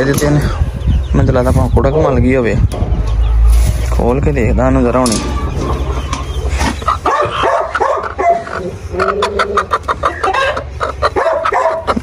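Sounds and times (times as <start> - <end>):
hen clucking: 0.0 - 12.0
crate and cage rattling: 2.7 - 8.7.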